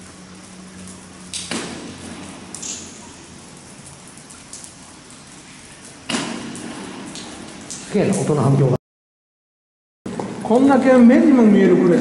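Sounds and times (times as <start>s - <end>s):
sharp impacts echoing in tunnel: 1.3s - 4.6s, 6.0s - 7.9s.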